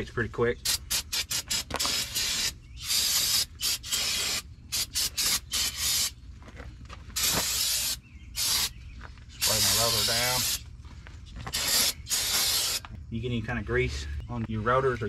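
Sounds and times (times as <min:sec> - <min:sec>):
aerosol spray bursts: 0:00.6 - 0:06.1, 0:07.2 - 0:08.7, 0:09.4 - 0:10.6, 0:11.5 - 0:12.8.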